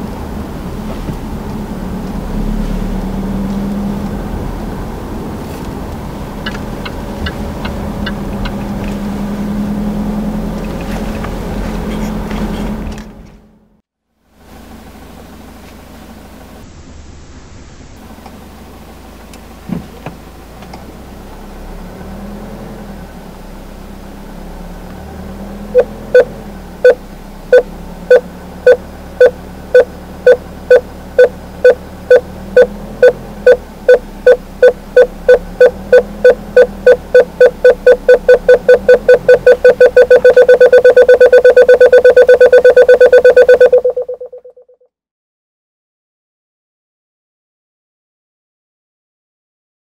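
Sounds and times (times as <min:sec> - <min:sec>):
parking sensor beeping: 0:25.7 - 0:44.8.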